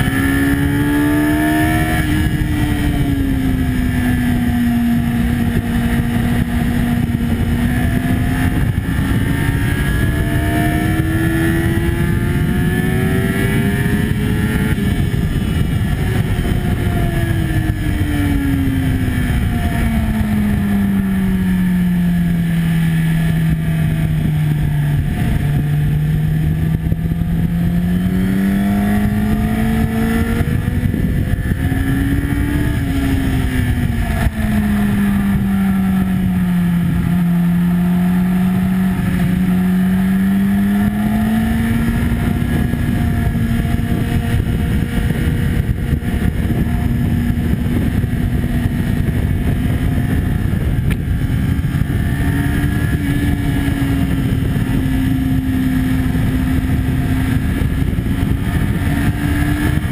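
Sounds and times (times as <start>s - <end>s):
motorcycle engine at speed: 0.0s - 59.9s
wind rush on microphone: 0.0s - 59.9s.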